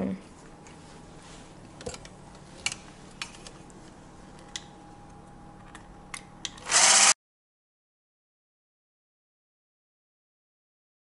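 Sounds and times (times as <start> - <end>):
electric hand blender whisking: 6.7 - 7.2.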